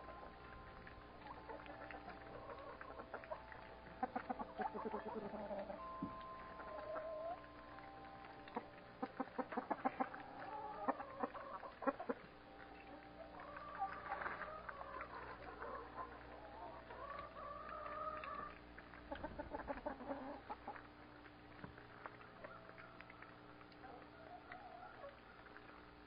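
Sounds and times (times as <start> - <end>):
hen rising call: 0.0 - 18.7
hens clucking: 1.1 - 7.6, 8.4 - 20.9.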